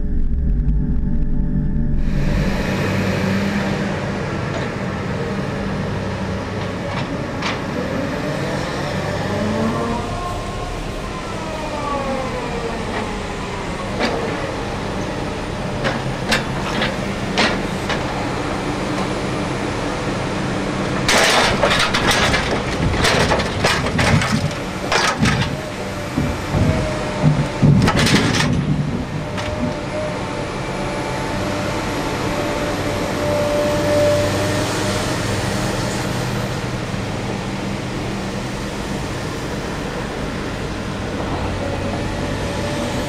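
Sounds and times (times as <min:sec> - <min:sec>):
hydraulic whine: 0:00.0 - 0:05.0
diesel engine and hydraulics running: 0:00.0 - 0:43.0.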